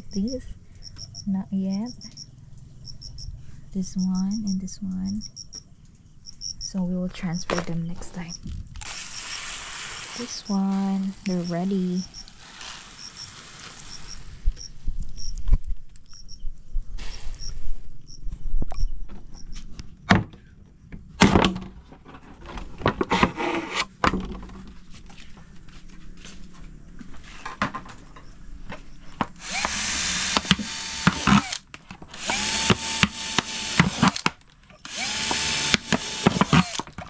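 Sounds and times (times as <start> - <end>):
knocks and handling sounds: 19.0 - 29.4
drill motor whine: 29.4 - 36.9.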